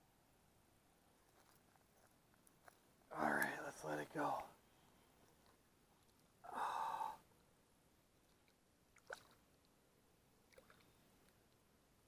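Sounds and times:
faint water splash: 8.2 - 9.7, 10.5 - 11.2.

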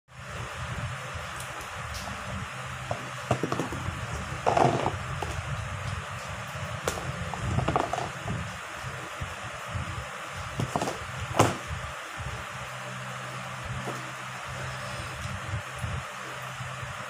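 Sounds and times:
steady low hum: 0.1 - 17.0
fruit knocking against plastic: 6.9 - 8.1.

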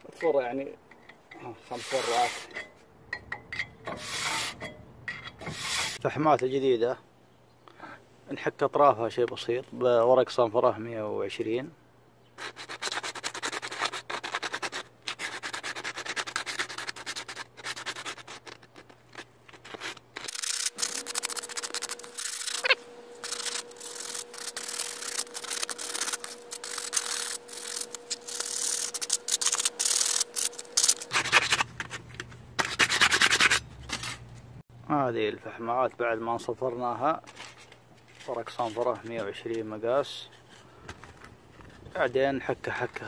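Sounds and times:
sandpaper scratching brake pads: 1.7 - 2.6, 3.9 - 4.6, 5.4 - 6.0, 12.4 - 34.3.

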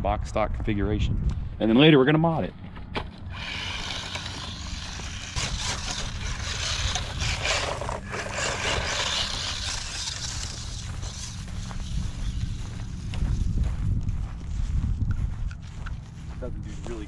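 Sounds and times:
tyres brushing through dry grass: 3.1 - 17.0
toy truck electric motor running: 3.3 - 13.5.

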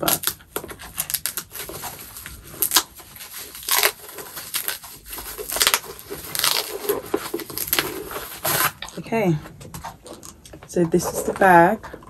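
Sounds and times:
packaging wrap crinkling and tearing: 0.0 - 9.0.

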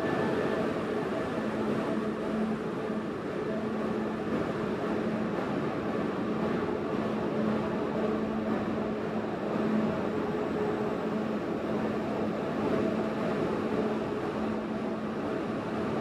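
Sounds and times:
train machinery hum: 0.0 - 16.0
ventilation rushing noise: 0.0 - 16.0.

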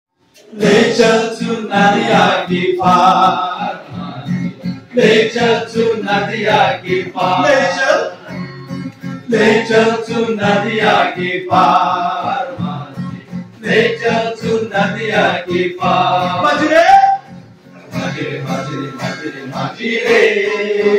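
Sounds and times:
acoustic guitar strumming: 0.2 - 20.9
man singing into a microphone: 18.3 - 20.9.

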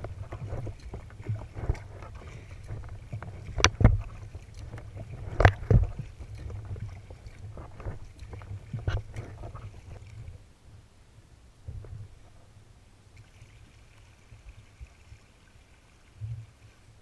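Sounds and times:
kayak paddle splashing water: 0.0 - 10.4.

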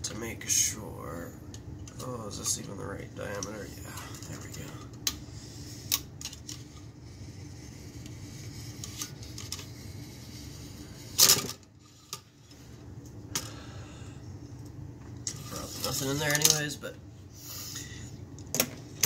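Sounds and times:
rod scraping: 15.3 - 16.5.

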